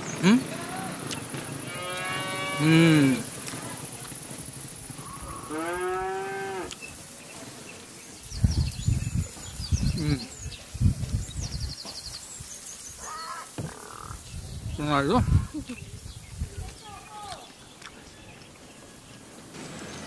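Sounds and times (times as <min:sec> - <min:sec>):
cow mooing: 0:01.7 - 0:03.2, 0:05.0 - 0:06.7.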